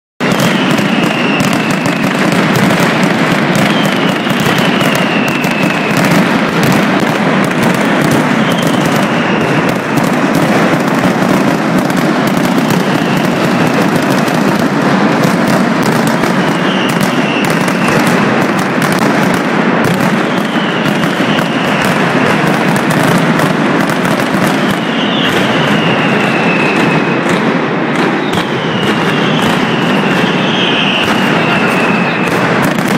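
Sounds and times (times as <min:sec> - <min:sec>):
firecracker barrage crackling: 0:00.2 - 0:32.9
falling whistle: 0:00.3 - 0:02.2, 0:03.6 - 0:06.1, 0:08.3 - 0:09.7, 0:12.8 - 0:13.6, 0:16.3 - 0:18.0, 0:20.2 - 0:22.2, 0:24.6 - 0:27.4, 0:28.0 - 0:32.4.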